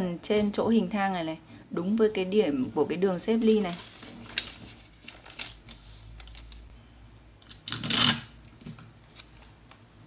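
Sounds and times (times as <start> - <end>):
paper ticks and rustles: 3.4 - 6.6.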